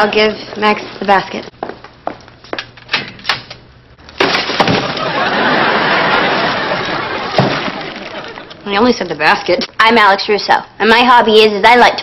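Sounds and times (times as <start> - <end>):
metal locker door clicking open: 2.9 - 3.5
studio audience laughing: 4.9 - 8.6.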